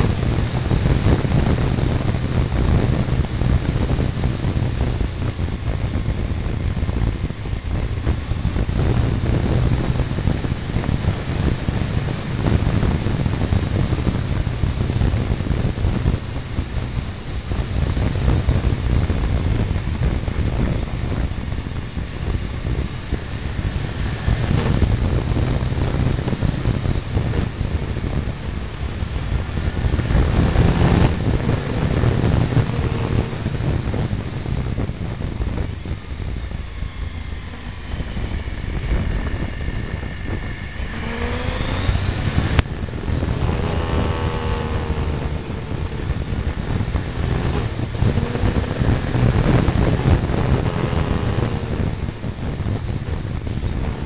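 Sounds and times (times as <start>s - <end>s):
motorcycle engine running: 0.0s - 54.0s
wind rush on microphone: 0.0s - 54.0s.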